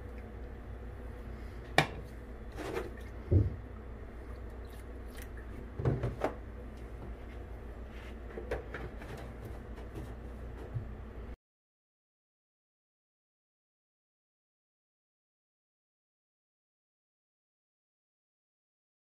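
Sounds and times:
steady low hum: 0:00.0 - 0:11.4.

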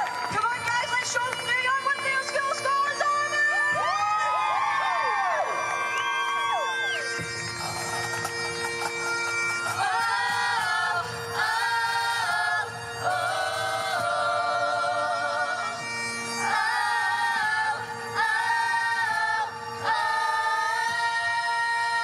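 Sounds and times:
backing music with drone: 0:00.0 - 0:22.0
young people singing: 0:09.7 - 0:15.8, 0:16.4 - 0:22.0.

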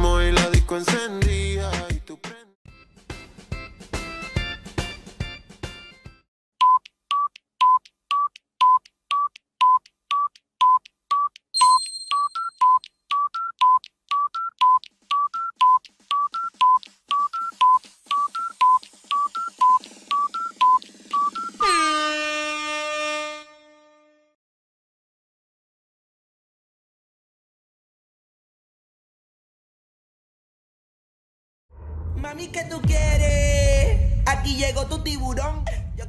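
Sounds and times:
music: 0:00.0 - 0:06.3, 0:15.2 - 0:21.7
countdown timer beeping two pitches: 0:06.6 - 0:21.9
ringing chime: 0:11.6 - 0:12.7.

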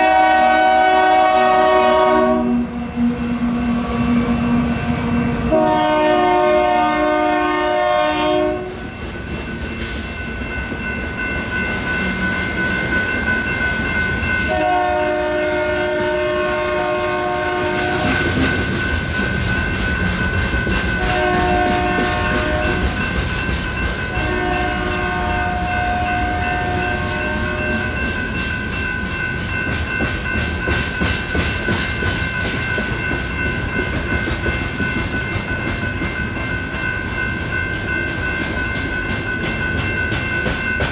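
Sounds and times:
locomotive horn blasts: 0:00.0 - 0:03.1, 0:05.5 - 0:08.8, 0:14.5 - 0:18.3, 0:21.0 - 0:23.0, 0:24.1 - 0:28.0
crossing bells ringing: 0:00.0 - 0:40.9
train wheels clacking over rails: 0:04.8 - 0:40.9.

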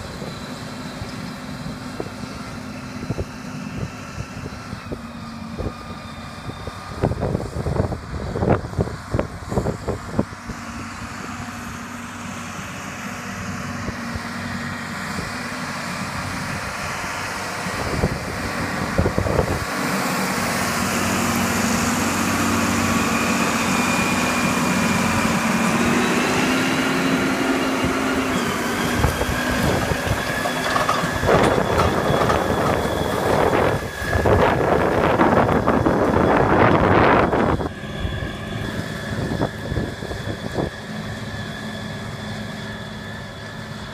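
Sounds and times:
tractor diesel engine running: 0:00.0 - 0:43.9
harrow rattling through soil: 0:09.6 - 0:37.8.

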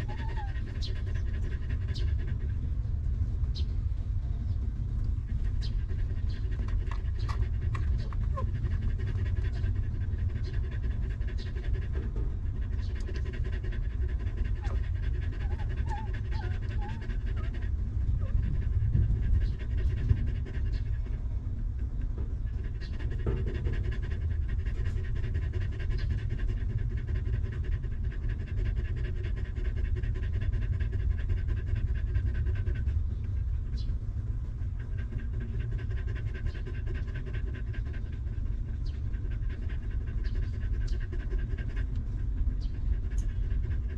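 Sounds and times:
puppies squeaking: 0:00.0 - 0:01.6, 0:05.6 - 0:08.6, 0:14.5 - 0:17.6
dog panting: 0:00.0 - 0:43.9
low rumble: 0:00.0 - 0:43.9.

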